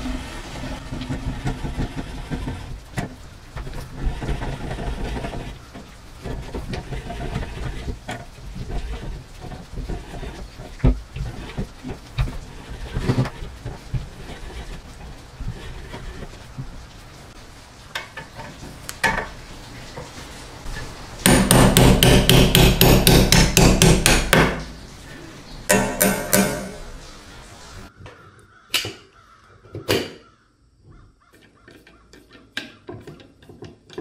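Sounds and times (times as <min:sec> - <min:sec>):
hammer striking chisel on metal: 0:21.3 - 0:24.6, 0:25.7 - 0:26.9.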